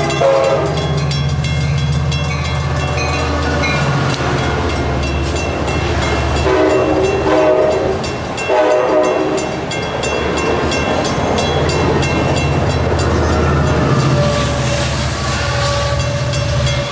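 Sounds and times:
locomotive air horn blasts: 0.0 - 0.8, 6.4 - 9.5, 14.1 - 16.4
train wheels clicking over rail joints: 0.0 - 16.9.

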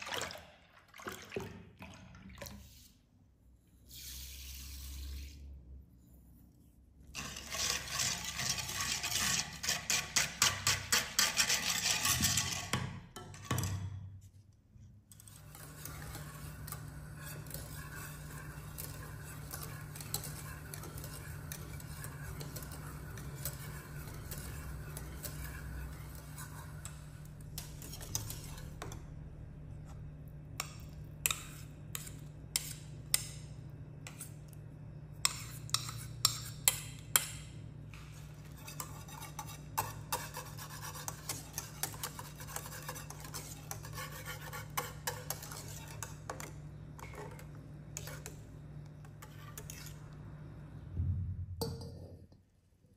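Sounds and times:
whisk scraping metal saucepan: 7.0 - 13.8, 15.1 - 29.1, 30.6 - 33.4, 34.0 - 34.5, 35.2 - 50.2
whisk tapping pot: 7.2 - 13.8, 15.1 - 29.0, 35.2 - 50.0
low hum: 50.0 - 51.8.

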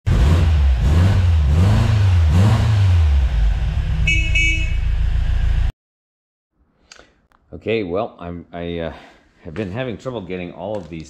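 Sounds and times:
car engine revving: 0.1 - 5.7
car horn toots: 4.0 - 5.1.

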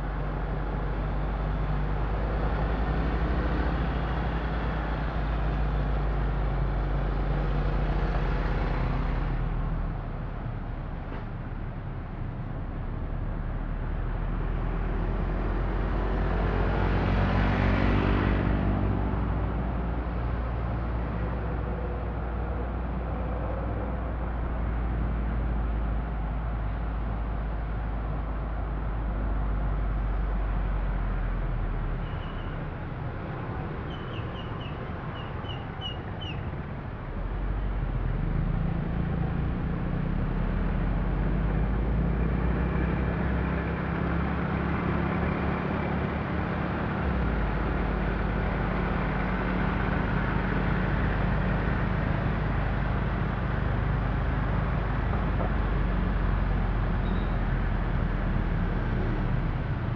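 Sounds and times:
traffic rumble of engines and tyres: 0.0 - 59.9
bird chirping: 33.9 - 36.4.

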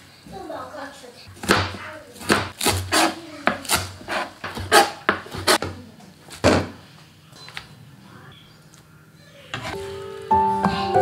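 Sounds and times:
knife chopping on plastic board: 1.3 - 5.7.

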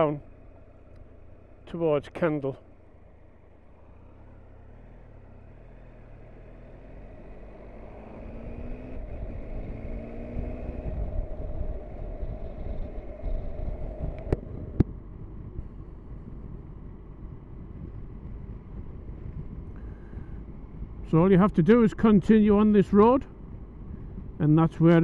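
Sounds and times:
motorcycle engine accelerating: 0.0 - 25.0
wind noise on microphone: 7.2 - 25.0.

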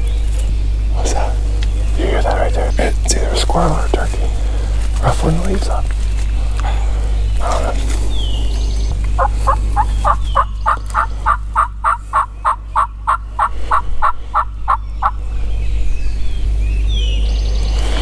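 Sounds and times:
turkey yelps: 9.2 - 15.2.

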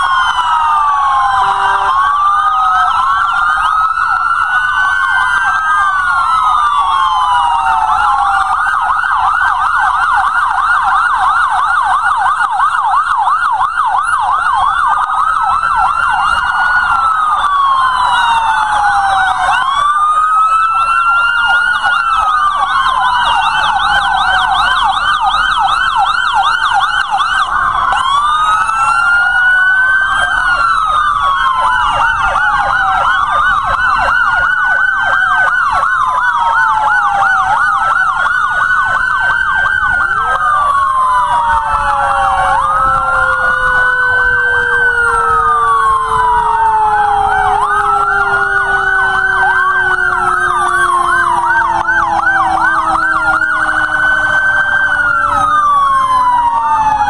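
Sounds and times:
emergency sirens wailing and yelping: 0.0 - 57.0
low tone sliding down in pitch: 0.4 - 3.0.

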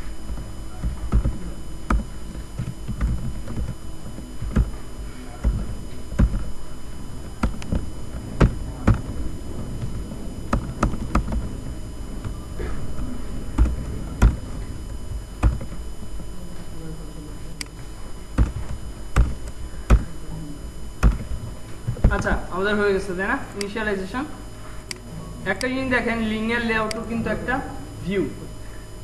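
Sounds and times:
low steady hum: 0.0 - 29.0
louder knocks: 4.4 - 6.6, 7.2 - 12.8, 15.4 - 15.8, 18.3 - 20.2, 21.0 - 22.4.

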